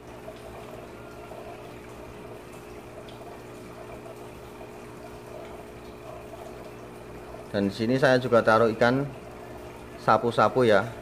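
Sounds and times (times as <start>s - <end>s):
aquarium pump hum: 0.0s - 11.0s
bubbling water: 0.0s - 11.0s.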